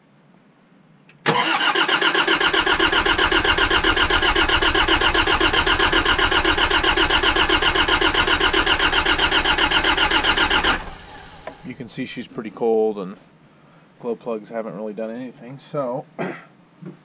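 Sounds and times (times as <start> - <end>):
diesel engine cranking: 1.2 - 11.7.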